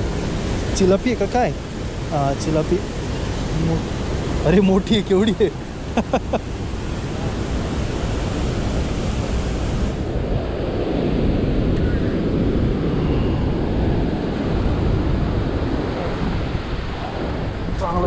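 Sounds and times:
white water rushing: 0:00.0 - 0:10.2
wind buffeting microphone: 0:00.0 - 0:18.0.

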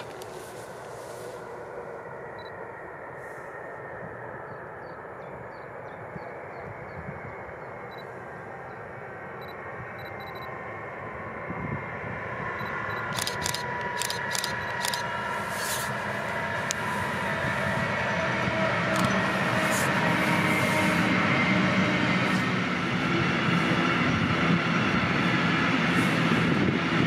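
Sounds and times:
train rushing: 0:00.0 - 0:27.0
sharp clicks of train wheels: 0:12.6 - 0:15.9, 0:18.9 - 0:20.0.

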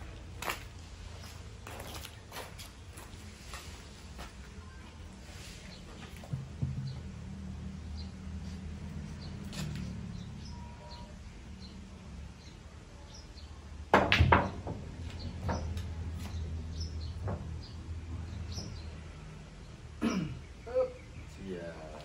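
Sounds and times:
cue striking ball: 0:13.9 - 0:15.8.

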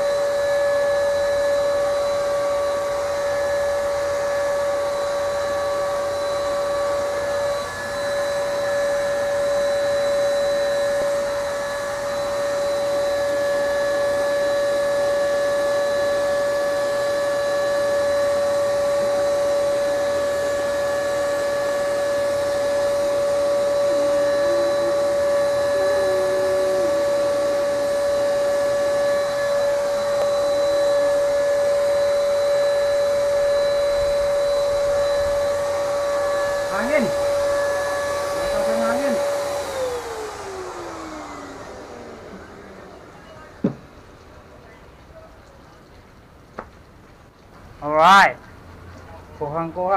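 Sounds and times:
paint sprayer motor whine: 0:00.0 - 0:44.7.

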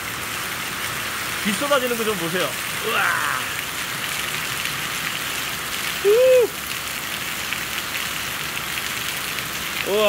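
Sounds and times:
heavy rain hissing: 0:00.0 - 0:10.0
runoff splashing onto gravel: 0:00.0 - 0:10.0
person exclaiming: 0:02.8 - 0:03.7, 0:06.0 - 0:06.6.

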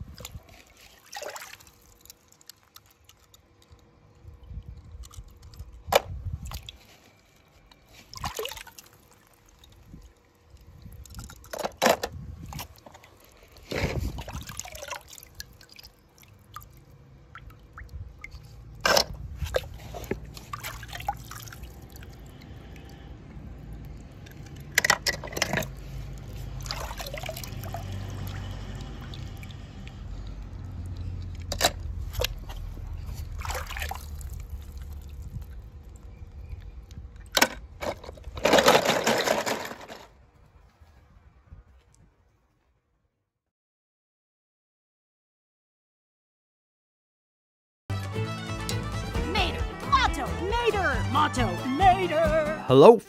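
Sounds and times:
water dripping: 0:00.2 - 0:05.6, 0:08.1 - 0:11.5, 0:14.2 - 0:18.5
toy cars splashing in water: 0:17.8 - 0:32.3, 0:33.3 - 0:35.2.

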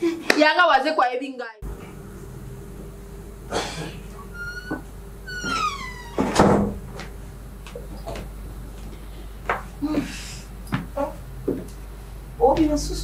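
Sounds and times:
high squeaks: 0:04.2 - 0:06.3.

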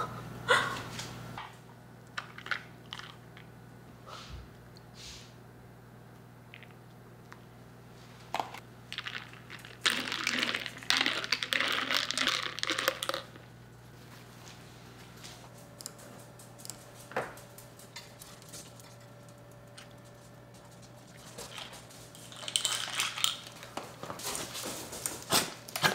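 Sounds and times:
ice cubes clinking in cup: 0:08.9 - 0:13.3, 0:21.5 - 0:23.6.

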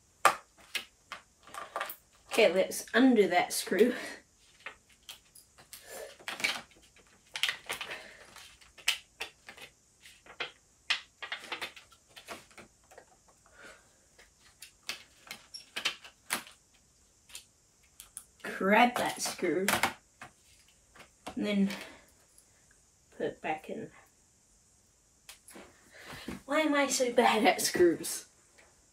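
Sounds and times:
handling plastic laptop parts: 0:04.5 - 0:13.5, 0:14.2 - 0:18.2.

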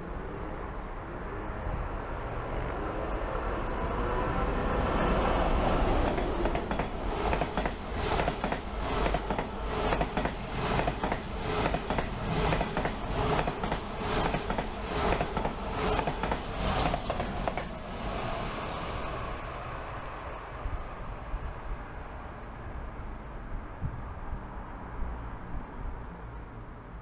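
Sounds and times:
train wheels clattering on track: 0:05.7 - 0:18.2.

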